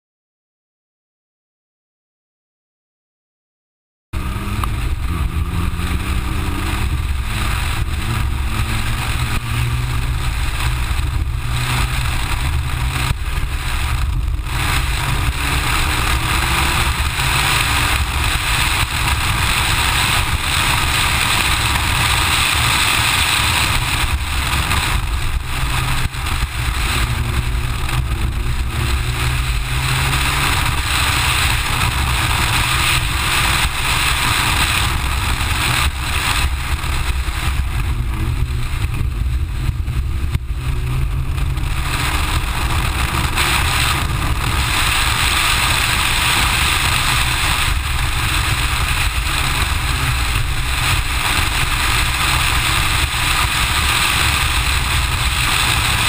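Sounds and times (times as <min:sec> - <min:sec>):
car engine revving hard: 0:04.2 - 0:56.0
wind and road noise: 0:04.2 - 0:56.0.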